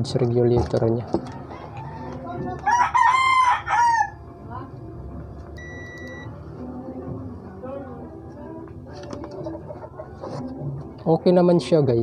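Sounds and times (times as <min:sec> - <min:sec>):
rooster crowing: 0:01.2 - 0:04.2
short electronic beep: 0:05.6 - 0:06.3.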